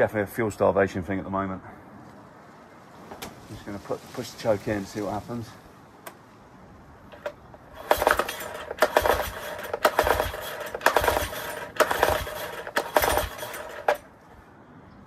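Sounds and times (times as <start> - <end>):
engine turning over: 7.1 - 14.2
recoil starter pulls: 7.1 - 14.2.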